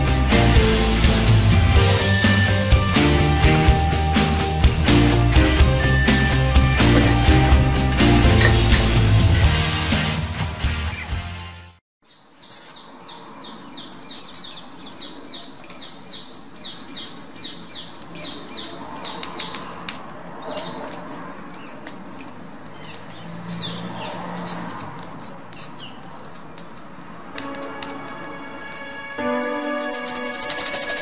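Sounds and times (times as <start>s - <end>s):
bird chirping: 12.1s - 20.9s, 22.7s - 25.0s, 25.6s - 28.1s.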